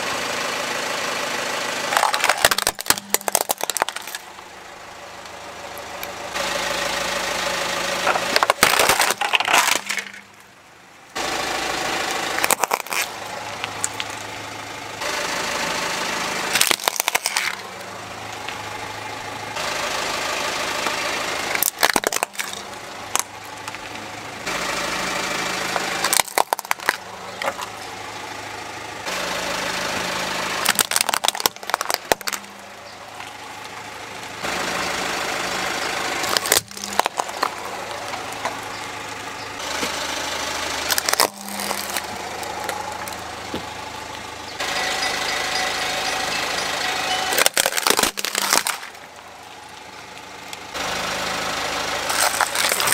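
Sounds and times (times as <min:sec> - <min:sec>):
car engine idling: 0:00.0 - 0:52.9
plastic toys crushing: 0:01.9 - 0:04.5, 0:08.0 - 0:10.5, 0:12.1 - 0:14.2, 0:16.5 - 0:17.7, 0:21.4 - 0:24.0, 0:25.8 - 0:27.8, 0:30.5 - 0:32.6, 0:36.2 - 0:38.9, 0:40.7 - 0:43.7, 0:46.0 - 0:49.2, 0:52.0 - 0:52.9.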